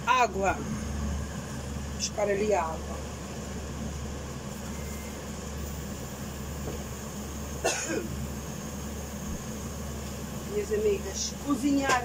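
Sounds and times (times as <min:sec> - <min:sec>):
low hum: 0:00.0 - 0:11.8.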